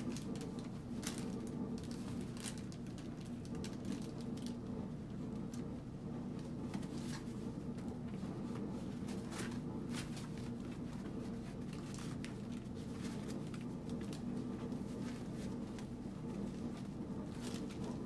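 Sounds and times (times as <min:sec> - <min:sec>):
steady low hum: 0:00.0 - 0:18.0
puppy paws scuffling on pads: 0:06.5 - 0:18.0.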